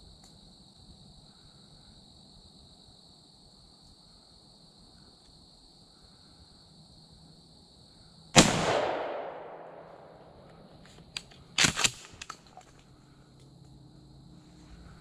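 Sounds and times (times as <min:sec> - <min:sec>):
gunshot echoing: 0:08.4 - 0:10.4.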